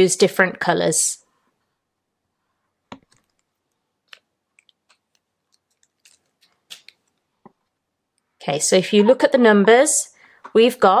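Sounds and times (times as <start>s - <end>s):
marker clicks and taps: 2.9s - 3.5s.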